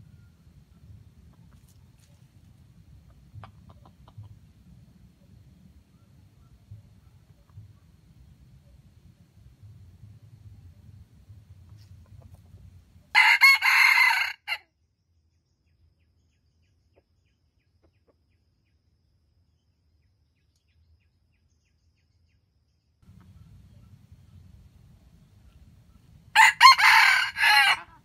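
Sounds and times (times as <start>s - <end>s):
faint low rumble: 0.0s - 13.2s, 23.0s - 28.0s
rooster crowing: 13.1s - 14.6s, 26.3s - 28.0s.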